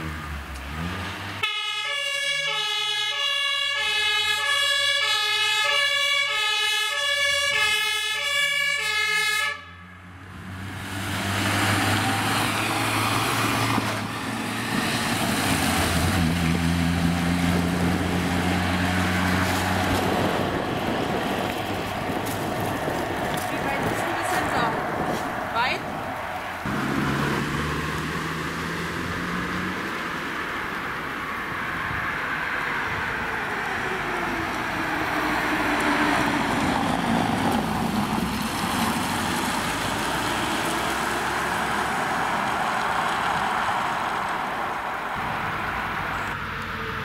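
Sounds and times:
road noise: 0:00.0 - 0:47.0
two-tone fire engine siren: 0:01.4 - 0:10.3, 0:31.9 - 0:38.1.

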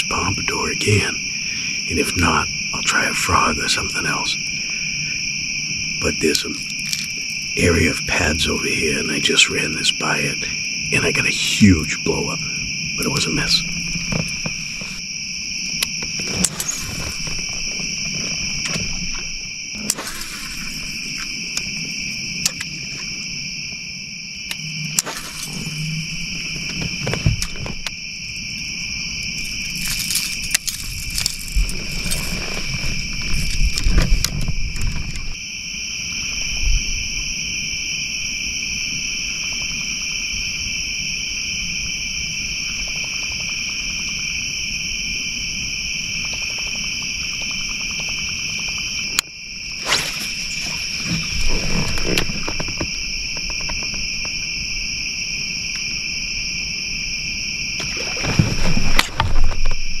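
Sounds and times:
crickets chirping: 0:00.0 - 1:00.0
knocks and rustles in a boat: 0:13.6 - 0:23.8, 0:25.1 - 0:28.0, 0:29.2 - 0:35.5, 0:45.4 - 0:49.2, 0:49.9 - 0:54.6, 0:57.7 - 1:00.0.

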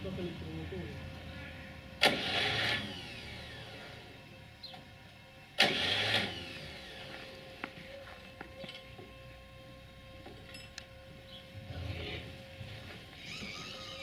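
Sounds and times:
diesel starter motor cranking: 0:01.2 - 0:04.9, 0:05.5 - 0:07.5, 0:08.6 - 0:14.0
starter spinning down whine: 0:02.0 - 0:04.9, 0:05.5 - 0:07.2, 0:08.7 - 0:14.0.

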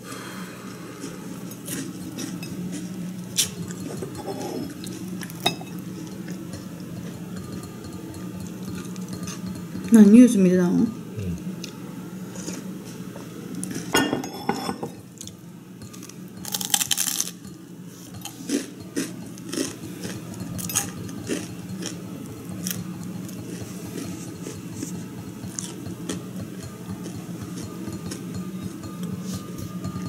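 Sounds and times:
crispy bread crunching: 0:16.0 - 0:17.4.

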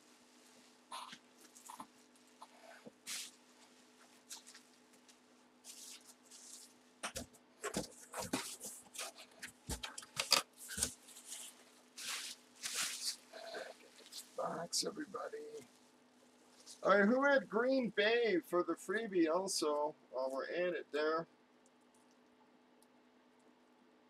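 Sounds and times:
bubble wrap crinkling: 0:00.0 - 0:07.2, 0:07.8 - 0:14.6
faint steady hum: 0:00.0 - 0:24.0.

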